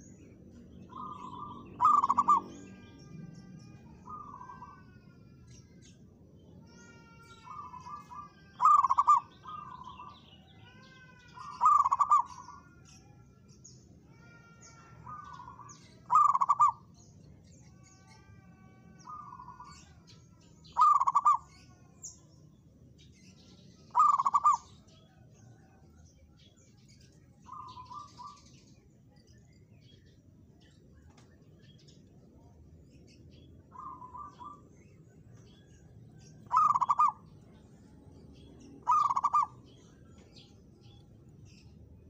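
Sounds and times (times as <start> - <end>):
small birds chirping: 0.0 - 42.0
doves cooing: 0.9 - 2.6, 7.4 - 10.0, 11.4 - 12.6, 15.0 - 16.9, 20.7 - 21.5, 23.9 - 24.8, 36.4 - 37.4, 38.8 - 40.2.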